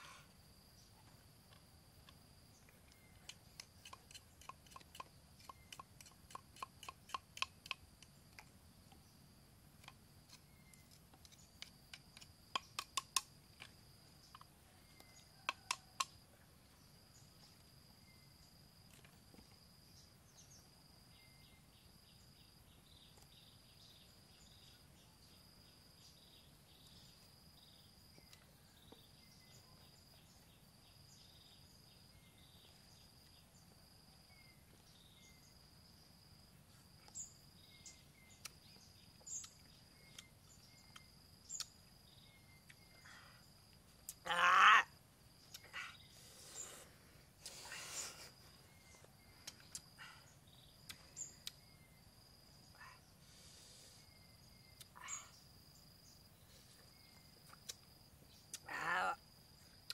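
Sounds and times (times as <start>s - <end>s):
insect trilling: 0.0s - 8.2s, 9.8s - 16.3s, 37.0s - 56.3s, 56.9s - 59.9s.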